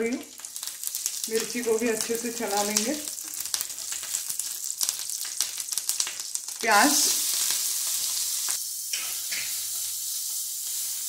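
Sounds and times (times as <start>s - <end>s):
garlic crackling in hot oil: 0.0s - 11.0s
onion sizzling in oil: 0.0s - 11.0s
spatula stirring in pan: 7.2s - 11.0s.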